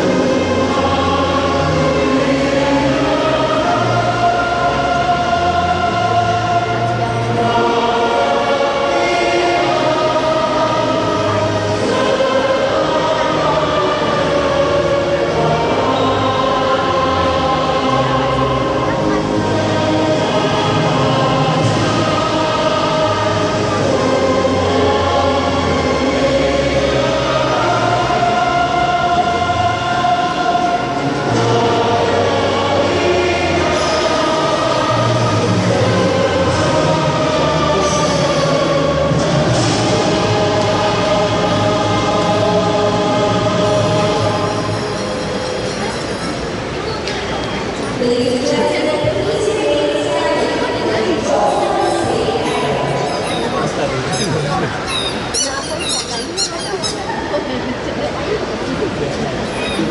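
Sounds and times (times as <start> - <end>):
choir singing long held notes: 0.0 - 59.9.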